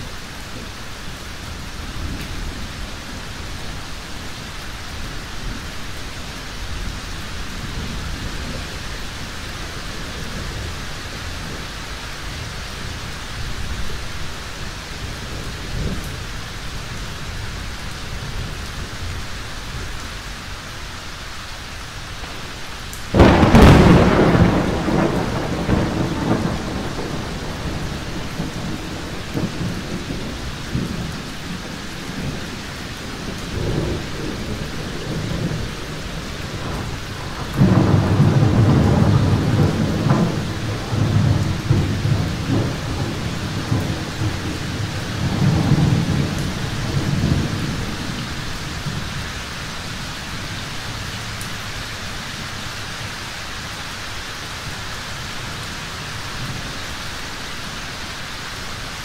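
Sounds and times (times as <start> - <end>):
steady rain: 0.0 - 59.0
distant thunder rumbling: 22.2 - 49.4
loud thunderclap: 23.1 - 49.0.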